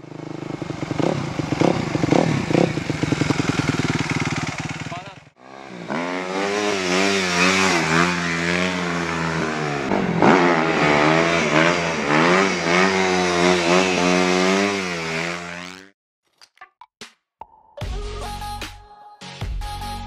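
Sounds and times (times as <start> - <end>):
motocross engine revving high: 0.3 - 15.9.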